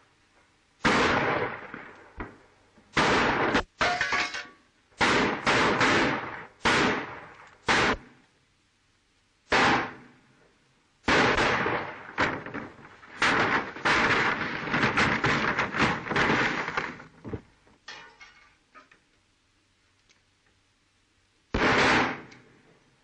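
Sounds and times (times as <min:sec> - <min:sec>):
revolver gunshots: 0:00.8 - 0:03.9, 0:05.0 - 0:08.2, 0:09.5 - 0:10.1, 0:11.0 - 0:17.0, 0:21.6 - 0:22.5.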